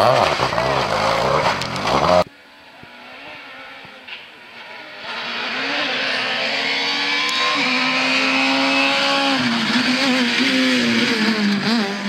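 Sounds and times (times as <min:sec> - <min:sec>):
rally car engine revving: 0:00.0 - 0:12.0
second car accelerating: 0:02.9 - 0:12.0.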